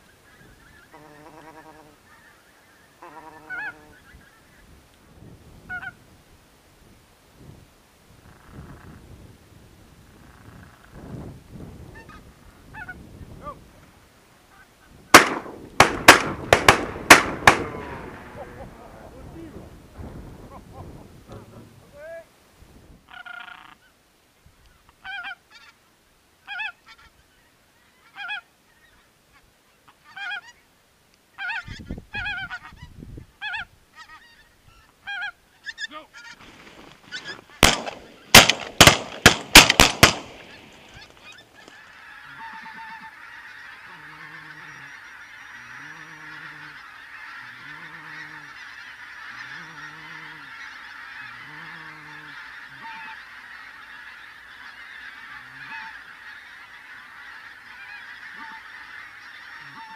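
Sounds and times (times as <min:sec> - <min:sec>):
geese honking: 0:00.0 - 0:04.7, 0:12.0 - 0:22.2, 0:23.1 - 0:24.0, 0:24.7 - 0:25.8, 0:26.4 - 0:30.7, 0:31.3 - 0:59.9
flock of geese calling overhead: 0:00.0 - 0:06.2, 0:10.0 - 0:22.3, 0:23.0 - 0:59.9
shotgun shots: 0:15.1 - 0:18.6, 0:37.6 - 0:40.9.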